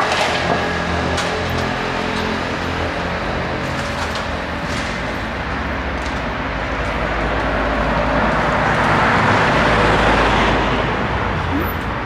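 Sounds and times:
street traffic rumble: 0:00.0 - 0:12.0
vehicle passing: 0:04.4 - 0:12.0.

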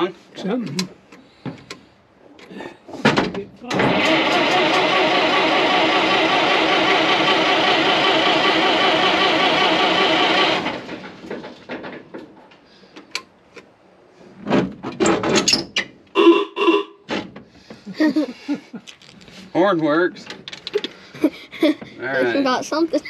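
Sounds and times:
truck horn buzzing blast: 0:16.1 - 0:17.0.

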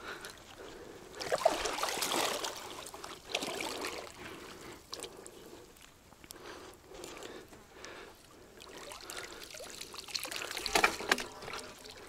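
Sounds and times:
shallow water splashing: 0:01.2 - 0:05.2.

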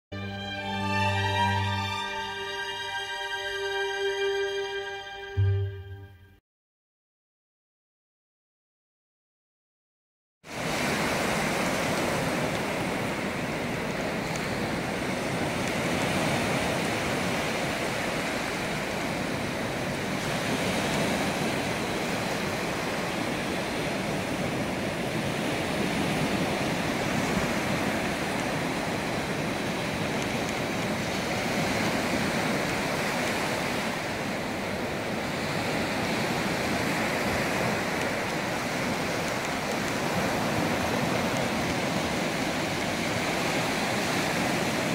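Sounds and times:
surf waves washing onto sand: 0:10.5 - 0:44.9.

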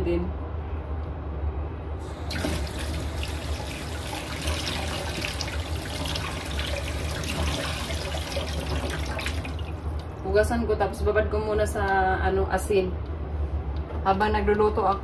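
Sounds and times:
tap water running into sink: 0:02.0 - 0:10.1.

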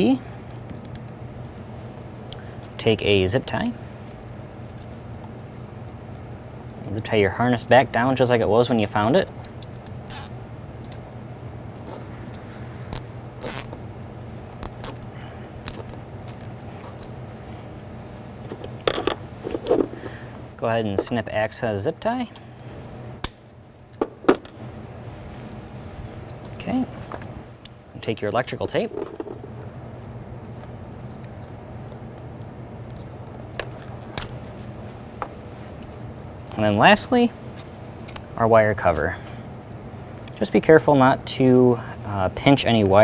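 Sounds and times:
steady low hum: 0:00.0 - 0:43.0
hands wrapping electrical tape: 0:09.3 - 0:11.0, 0:11.7 - 0:17.2.

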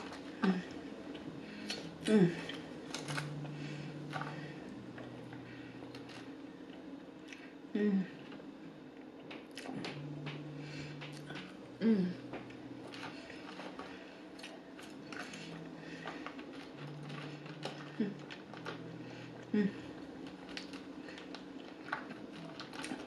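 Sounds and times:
person humming mm: 0:01.6 - 0:04.0, 0:07.7 - 0:08.2, 0:10.0 - 0:12.4, 0:19.2 - 0:20.0
chewing: 0:12.4 - 0:23.0.

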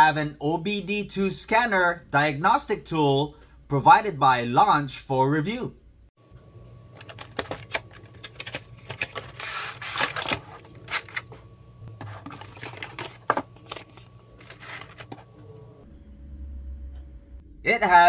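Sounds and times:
plastic tray rustling and clicking: 0:07.0 - 0:11.4, 0:12.0 - 0:15.2
paper manual handled: 0:07.0 - 0:15.4
cardboard box opening: 0:07.1 - 0:11.3, 0:12.0 - 0:15.3.

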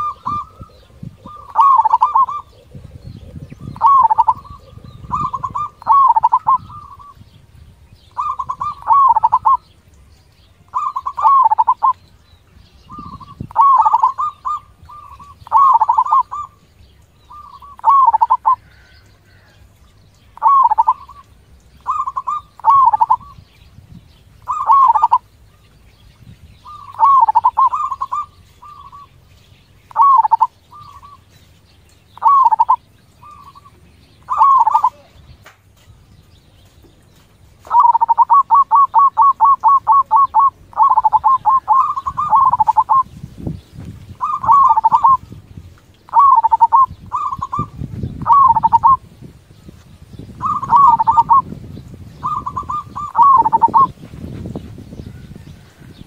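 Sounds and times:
dove cooing: 0:00.0 - 0:07.2, 0:08.1 - 0:09.7, 0:10.7 - 0:12.0, 0:12.9 - 0:16.6, 0:17.3 - 0:19.6, 0:20.4 - 0:23.4, 0:24.4 - 0:25.3, 0:26.6 - 0:29.1, 0:29.9 - 0:31.3, 0:32.2 - 0:35.4, 0:37.6 - 0:43.1, 0:44.2 - 0:45.4, 0:46.1 - 0:49.1, 0:50.4 - 0:51.5, 0:52.2 - 0:54.0.

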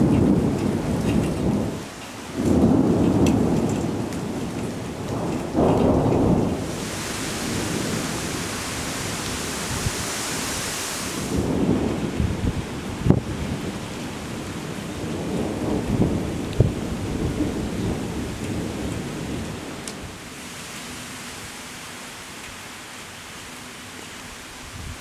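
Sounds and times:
thunder rumbling: 0:00.0 - 0:20.2
steady rain: 0:00.0 - 0:25.0
high hiss: 0:06.6 - 0:11.6.

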